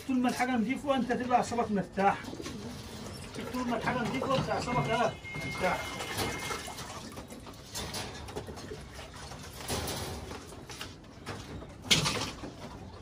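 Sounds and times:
pigeons cooing: 1.6s - 4.9s
knocks and clatter of drinkers: 9.4s - 13.0s.

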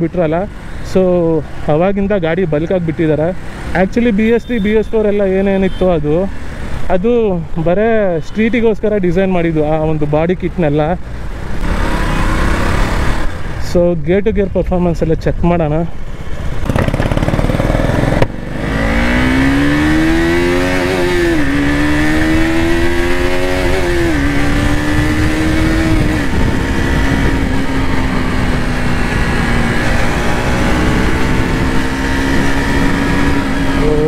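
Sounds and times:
motorcycle engine accelerating: 11.6s - 13.3s, 16.5s - 34.0s.

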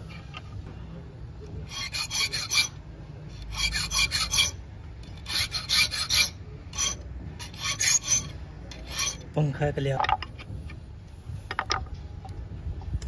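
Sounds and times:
file rasping on steel: 1.6s - 2.8s, 3.4s - 9.3s.

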